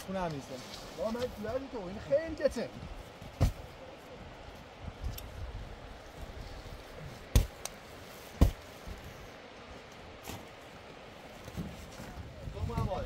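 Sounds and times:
heavy sacks thudding: 8.4s - 8.7s.

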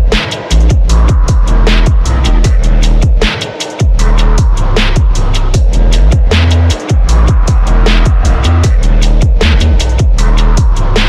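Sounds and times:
deep bass kicks: 0.0s - 11.0s
fast high percussion: 0.0s - 11.0s.

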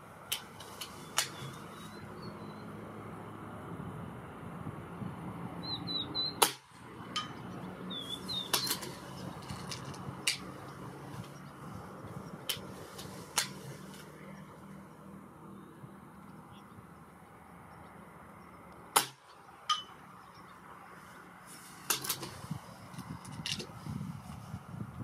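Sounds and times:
air rifle shot: 6.4s - 6.8s, 18.9s - 19.3s.

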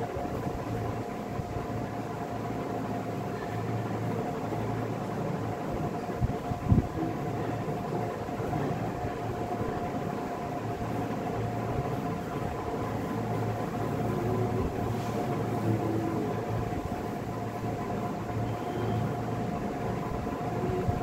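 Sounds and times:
mechanical hum and hiss: 0.0s - 21.0s.

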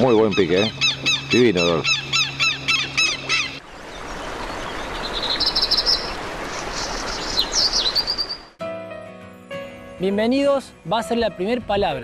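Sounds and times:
birds chirping: 0.0s - 8.6s.

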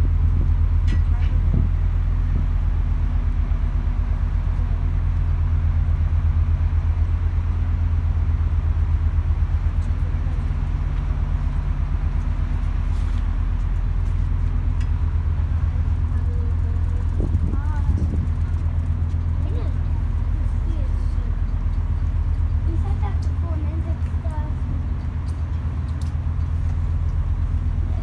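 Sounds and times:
ship engines droning: 0.0s - 28.0s.

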